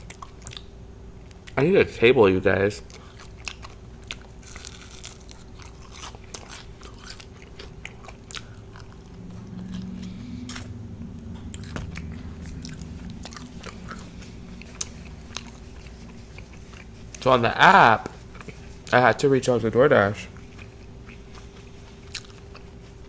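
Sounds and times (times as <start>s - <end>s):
person crunching crispy food: 2.9s - 10.7s, 20.4s - 22.7s
low steady tone: 9.0s - 15.7s.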